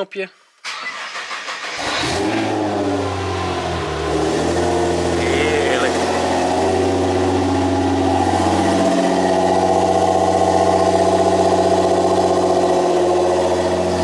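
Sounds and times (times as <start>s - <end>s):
car engine idling: 1.0s - 14.0s.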